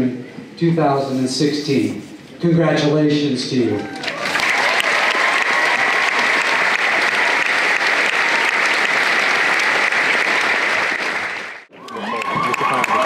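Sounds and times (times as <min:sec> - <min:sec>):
large crowd applauding: 0:03.9 - 0:13.0.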